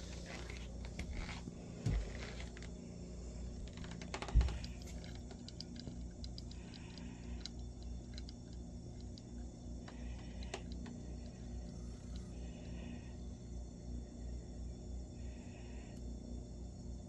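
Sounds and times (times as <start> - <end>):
kitten claws clicking and tapping: 3.6 - 10.9.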